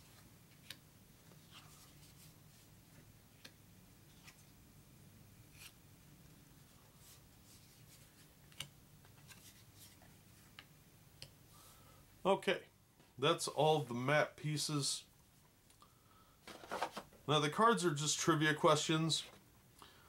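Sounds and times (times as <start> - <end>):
cardboard pieces on wooden table: 16.4 - 17.1.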